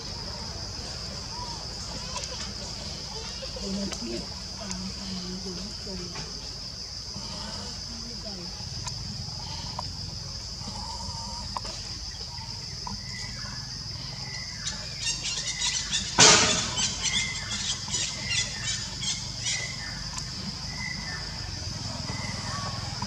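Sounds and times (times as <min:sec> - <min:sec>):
forest insects droning: 0:00.0 - 0:23.0.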